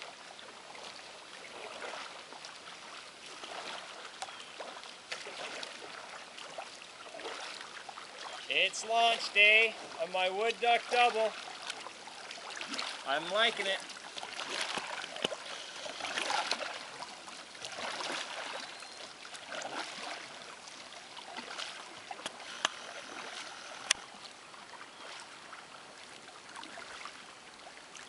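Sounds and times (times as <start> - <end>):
kayak paddle splashing: 0.0 - 28.0.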